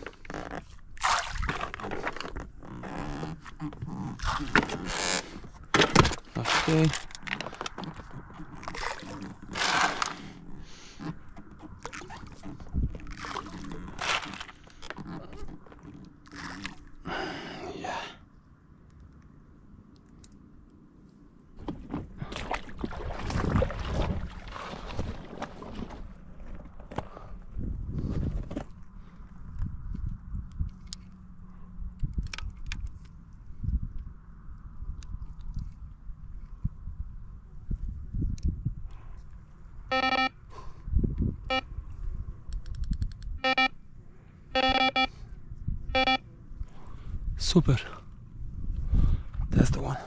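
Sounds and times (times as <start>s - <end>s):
water: 0.0s - 17.4s, 21.6s - 26.6s
faint wind: 0.0s - 50.0s
electronic bite alarm beeping: 39.9s - 40.4s, 41.5s - 41.7s, 43.4s - 43.8s, 44.5s - 45.2s, 45.9s - 46.2s.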